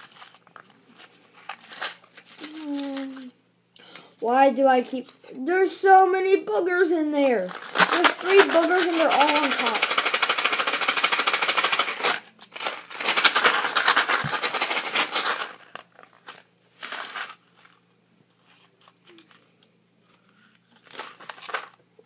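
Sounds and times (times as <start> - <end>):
jelly beans rattling in a box: 0.0 - 3.3, 7.2 - 17.8, 20.2 - 21.8.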